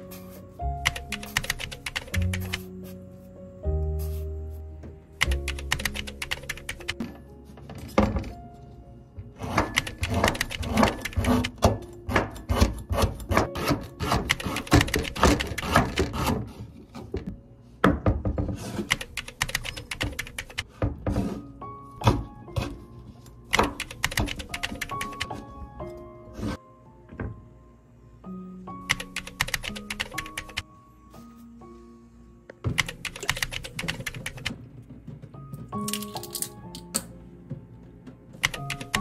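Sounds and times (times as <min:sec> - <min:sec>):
background music: 0:00.0 - 0:39.0.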